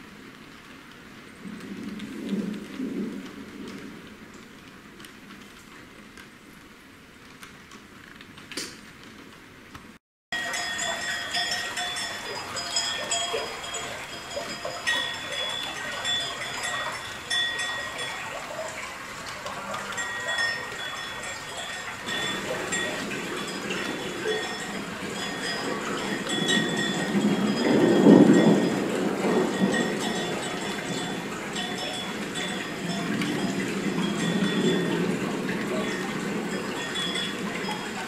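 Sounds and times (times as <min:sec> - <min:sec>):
rain hiss: 0:00.0 - 0:09.8, 0:10.4 - 0:38.0
cowbells clanking: 0:10.3 - 0:38.0.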